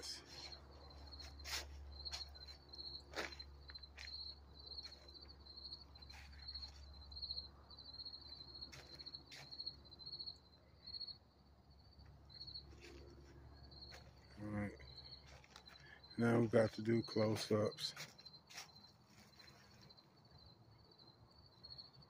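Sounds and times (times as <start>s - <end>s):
cricket chirping: 0.0s - 22.0s.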